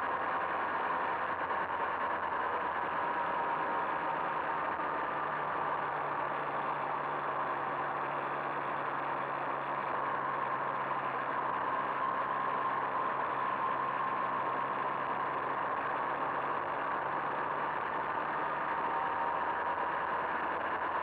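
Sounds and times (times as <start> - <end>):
two-stroke moped engine: 0.0 - 21.0.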